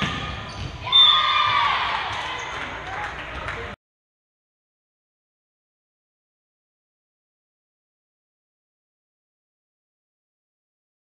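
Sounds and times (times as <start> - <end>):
echoing voices in a gym: 0.0 - 3.8.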